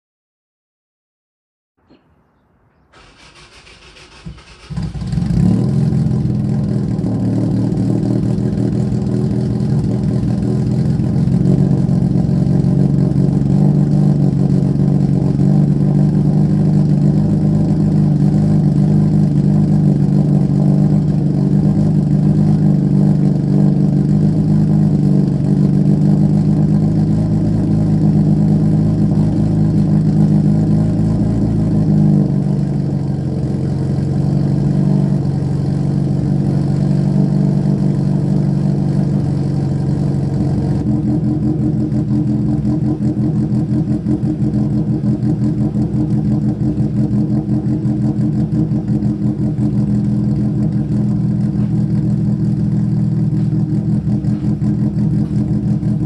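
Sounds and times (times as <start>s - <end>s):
car engine idling: 3.0s - 56.0s.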